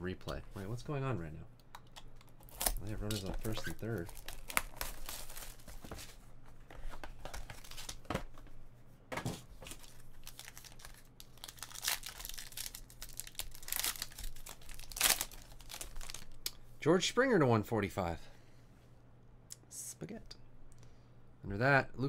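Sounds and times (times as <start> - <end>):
card pack wrapper crinkling and tearing: 2.4 - 6.0, 7.2 - 8.1, 9.6 - 16.5.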